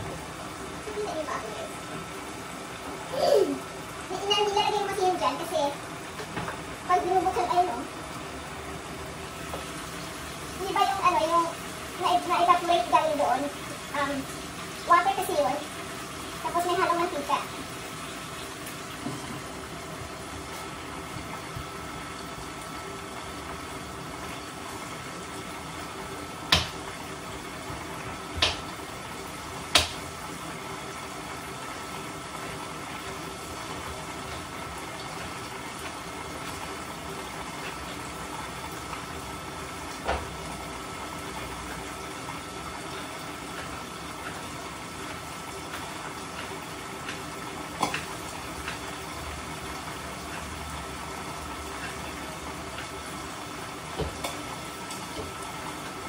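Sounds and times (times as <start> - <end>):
food sizzling in hot oil: 0.0 - 56.0
oil popping: 42.8 - 56.0.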